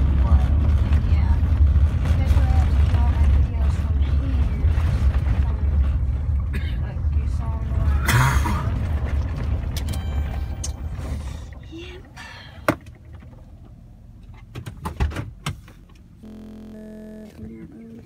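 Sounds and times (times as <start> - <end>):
road rumble inside car: 0.0 - 18.0
steady hum: 16.1 - 18.0.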